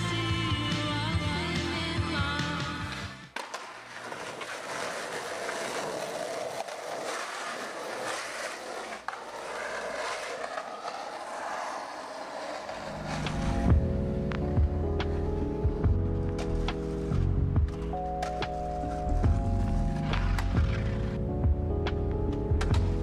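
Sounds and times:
skateboard clack: 2.8s - 15.2s, 16.3s - 21.0s
skateboard wheels rolling: 2.8s - 23.0s.

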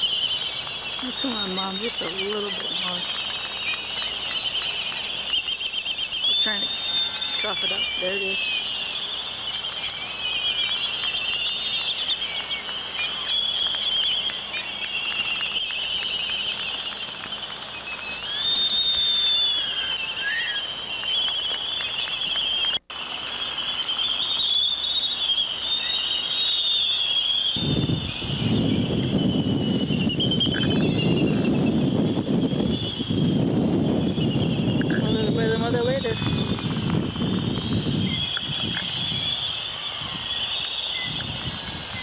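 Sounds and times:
seabirds squealing: 0.0s - 31.7s.

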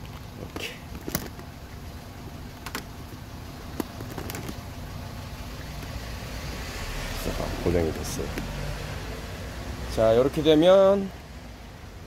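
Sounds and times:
low background rumble: 0.0s - 8.4s.

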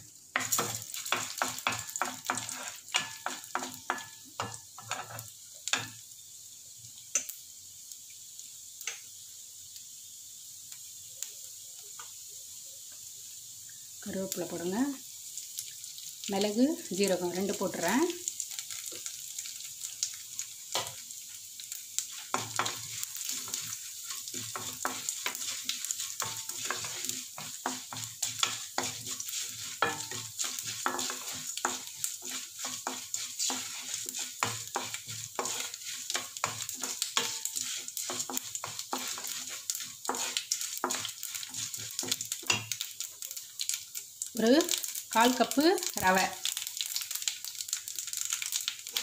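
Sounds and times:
spices sizzling in hot oil: 0.0s - 49.0s
spatula tapping against pan: 0.4s - 4.9s.

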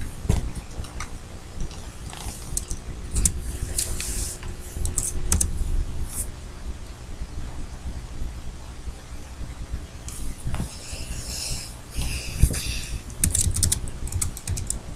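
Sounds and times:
keyboard and mouse clicks: 0.0s - 4.1s, 4.8s - 5.5s, 12.0s - 14.8s
steady low rumble: 0.0s - 14.9s.

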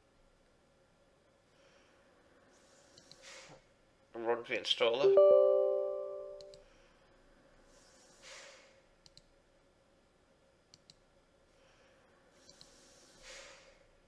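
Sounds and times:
person breathing: 1.5s - 3.6s, 11.5s - 13.9s
soft mouse clicks: 2.9s - 3.3s, 9.0s - 9.4s, 10.7s - 11.1s, 12.4s - 12.8s
computer system chime: 5.0s - 6.6s.

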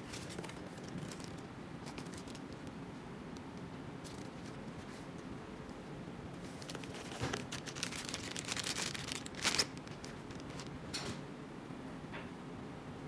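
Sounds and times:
plastic packaging rustling: 0.0s - 2.8s, 4.0s - 5.4s, 6.4s - 10.8s
low background noise: 0.0s - 13.0s
cardboard box being opened: 6.5s - 10.6s.

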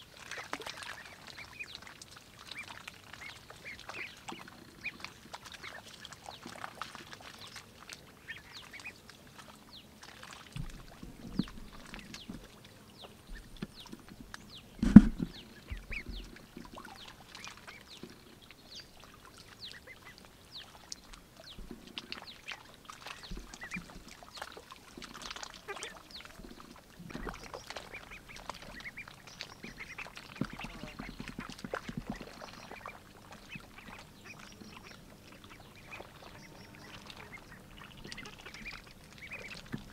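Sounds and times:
ducks dabbling and splashing: 0.0s - 39.9s
loud thump: 14.8s - 15.8s
ducks quacking: 14.8s - 16.3s, 25.2s - 39.9s.

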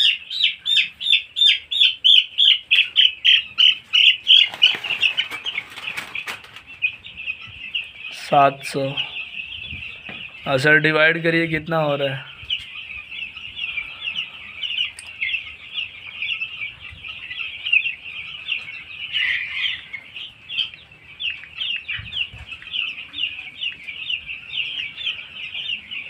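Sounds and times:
chicks peeping: 0.0s - 26.0s.

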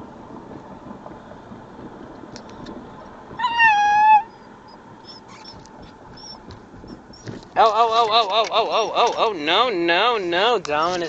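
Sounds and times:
low steady car noise: 0.0s - 11.0s
puppy whining cry: 3.4s - 7.3s, 8.6s - 9.2s.

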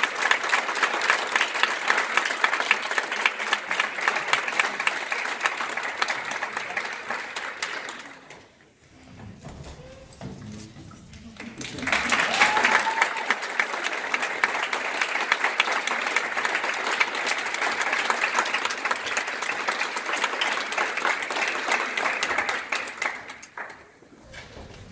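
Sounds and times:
audience applauding: 0.0s - 8.6s, 10.8s - 24.0s.

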